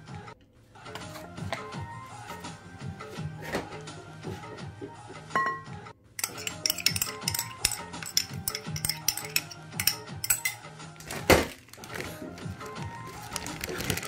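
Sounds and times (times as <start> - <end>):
background music: 0.0 - 14.0
glass bowls clinking: 5.4 - 10.7.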